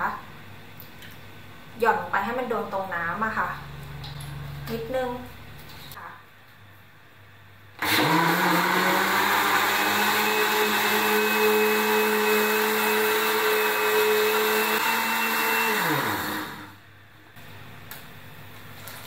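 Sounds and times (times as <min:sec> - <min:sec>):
blender motor whine: 0:07.8 - 0:16.8.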